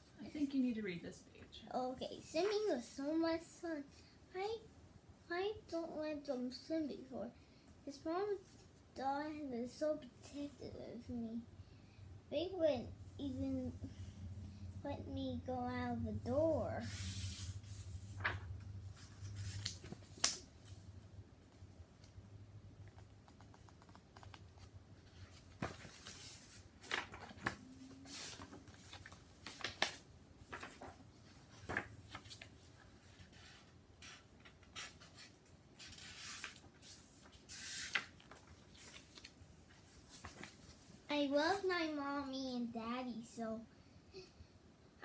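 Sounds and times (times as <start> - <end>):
book pages rustling: 16.8 - 20.8, 22.9 - 41.0.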